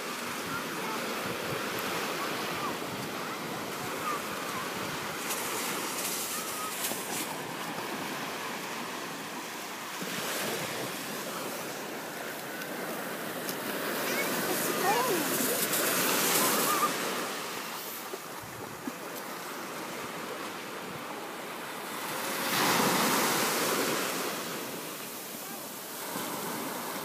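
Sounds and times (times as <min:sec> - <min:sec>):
waves washing up sandy beach: 0:00.0 - 0:27.0
wind buffeting microphone: 0:18.3 - 0:19.0.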